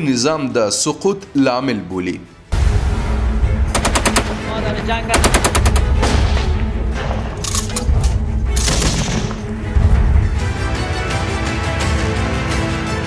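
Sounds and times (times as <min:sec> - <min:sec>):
automatic gunfire bursts: 0:03.8 - 0:04.4, 0:05.1 - 0:06.0.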